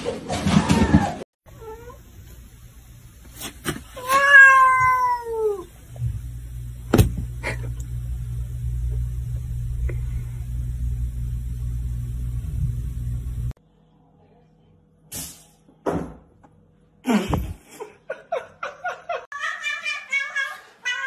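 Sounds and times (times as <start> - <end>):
cat meowing: 4.0 - 5.7
steady low rumble: 5.8 - 13.6.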